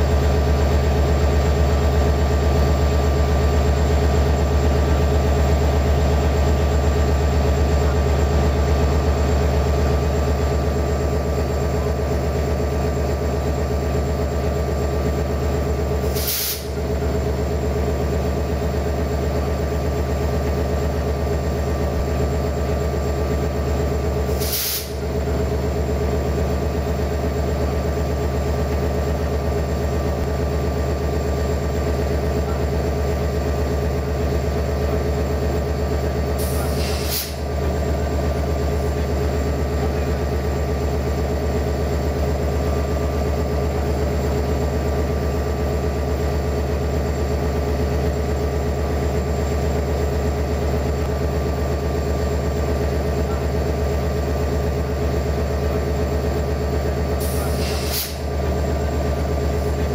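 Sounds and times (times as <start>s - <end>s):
diesel train engine idling: 0.0s - 59.9s
brief hisses: 16.1s - 16.8s, 24.4s - 25.0s, 36.4s - 37.4s, 57.2s - 58.3s.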